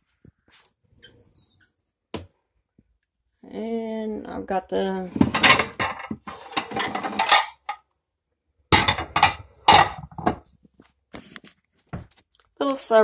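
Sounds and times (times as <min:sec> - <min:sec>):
pots and pans clattering: 0:05.2 - 0:07.8, 0:08.7 - 0:10.4.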